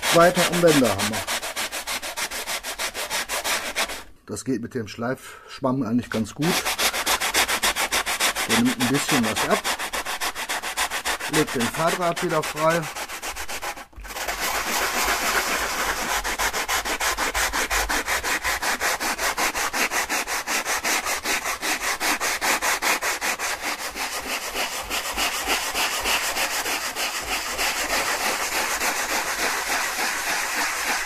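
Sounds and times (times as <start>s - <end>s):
sanding sponge rubbing filler: 0.0s - 4.1s, 6.0s - 31.0s.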